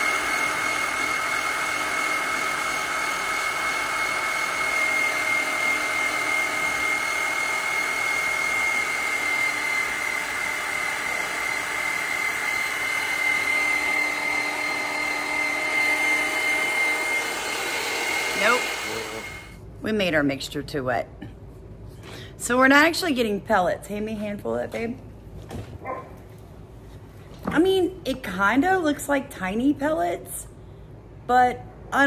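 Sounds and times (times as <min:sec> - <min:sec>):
pellet mill motor whining: 0:00.0 - 0:19.6.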